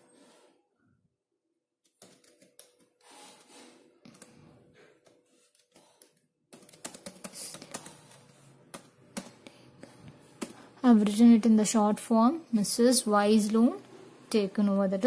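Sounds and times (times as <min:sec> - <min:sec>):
computer keyboard typing: 0:05.8 - 0:10.6.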